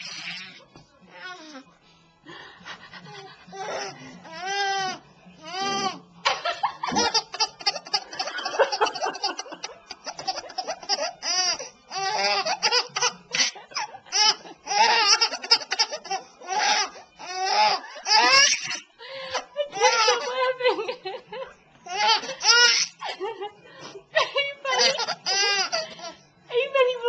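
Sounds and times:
baby laughing: 3.0s - 20.5s, 21.9s - 23.2s, 24.7s - 26.2s.

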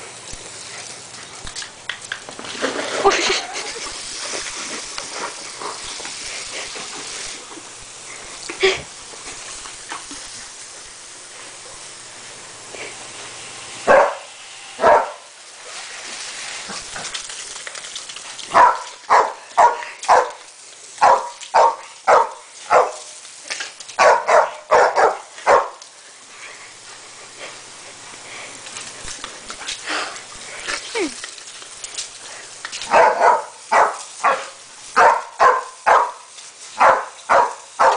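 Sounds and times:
dog barking: 13.9s - 15.2s, 18.5s - 20.4s, 21.0s - 23.1s, 24.0s - 25.8s, 32.9s - 36.2s, 36.8s - 37.9s.

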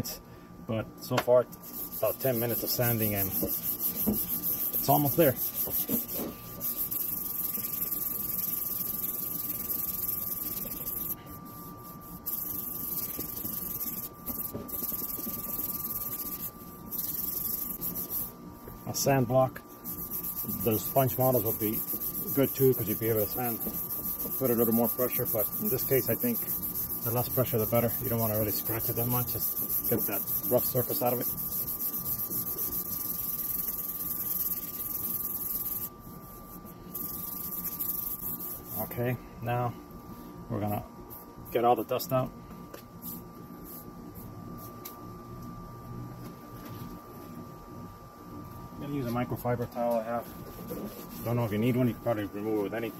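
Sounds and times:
sandpaper rasping on plastic: 1.6s - 18.3s, 19.8s - 36.4s, 37.0s - 38.9s.

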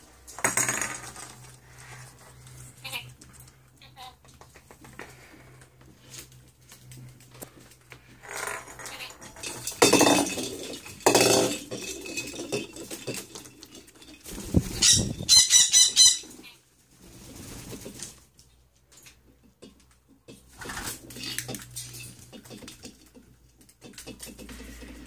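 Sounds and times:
wings flapping: 14.2s - 15.4s, 17.0s - 18.2s
parrot harsh high calls: 14.7s - 16.6s.

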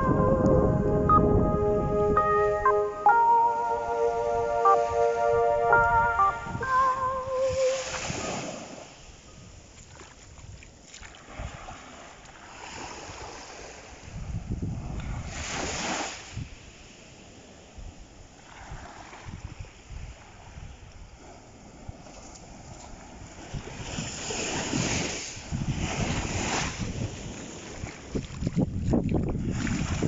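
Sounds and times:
waves washing up a beach: 7.4s - 30.0s.

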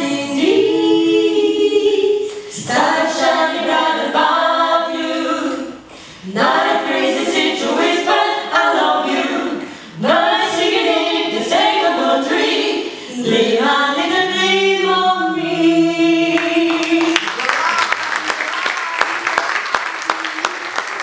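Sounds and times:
group singing a cappella: 0.0s - 17.2s
singers breathing: 5.8s - 6.3s, 9.6s - 10.0s, 12.8s - 13.2s.

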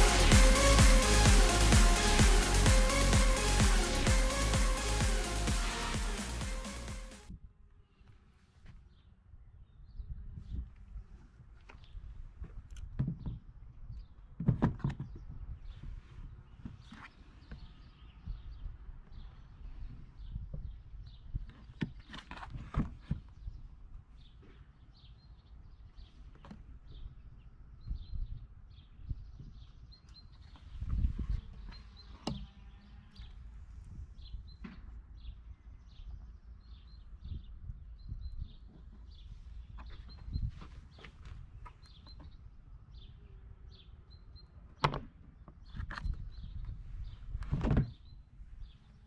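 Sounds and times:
small birds chirping: 23.0s - 49.0s.

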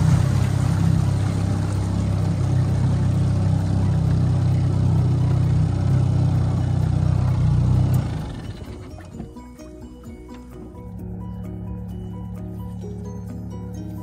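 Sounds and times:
water noise: 0.0s - 9.4s
outboard motor running: 0.0s - 14.0s.

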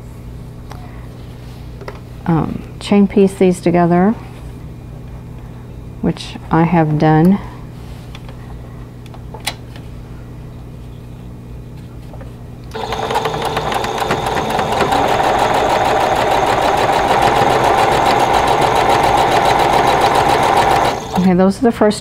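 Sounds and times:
electric sewing machine stitching: 12.7s - 21.4s.

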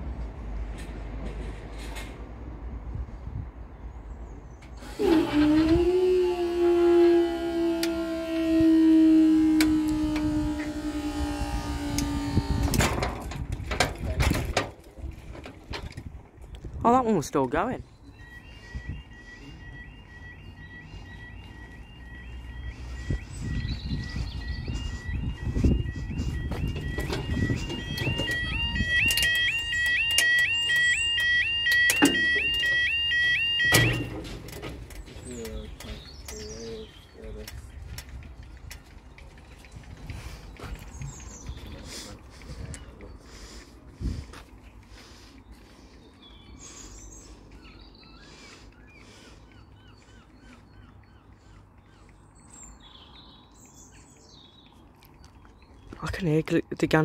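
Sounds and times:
level crossing yelp alarm: 4.8s - 12.9s, 17.1s - 37.0s.

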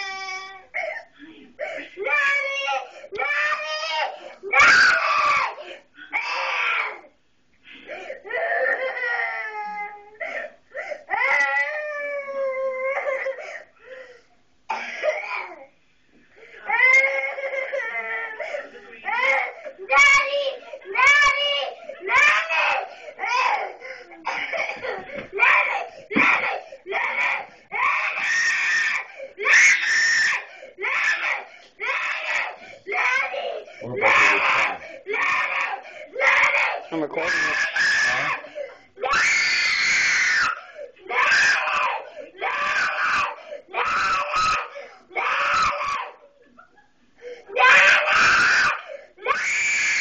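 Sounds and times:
girl crying and wailing: 2.0s - 5.6s, 8.3s - 10.2s, 11.1s - 13.5s, 16.7s - 18.5s, 19.1s - 46.3s
girl screaming: 2.1s - 5.6s, 39.0s - 46.2s, 47.6s - 50.0s
girl sobbing breaths: 2.8s - 3.2s, 13.2s - 15.2s, 21.8s - 22.0s, 22.8s - 26.9s, 35.8s - 36.2s, 38.4s - 39.0s, 40.6s - 41.0s, 42.0s - 42.4s, 43.4s - 43.7s, 47.1s - 47.6s, 48.8s - 49.2s
short breaths: 13.4s - 14.4s, 22.9s - 23.2s, 32.6s - 32.9s, 35.8s - 36.2s, 47.1s - 47.5s.

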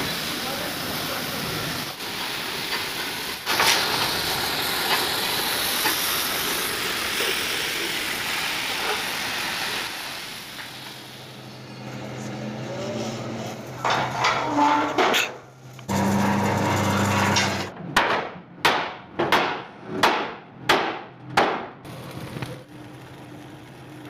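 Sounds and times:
cutting torch hissing: 0.0s - 14.0s
sharp metal knocks: 17.3s - 21.7s.

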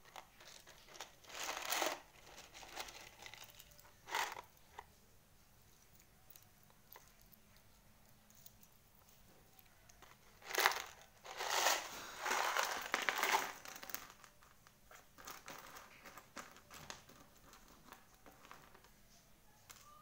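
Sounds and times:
beads rattling in plastic jar: 0.0s - 4.6s, 10.0s - 18.9s.

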